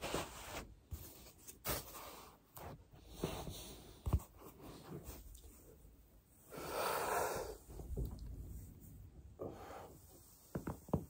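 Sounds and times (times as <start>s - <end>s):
person exhaling heavily: 6.5s - 7.7s.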